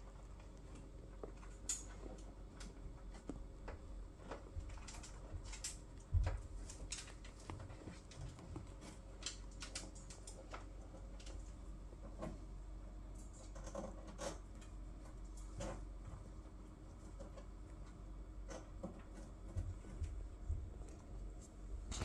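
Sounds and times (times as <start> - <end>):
kittens rustling on fabric: 2.4 - 9.2.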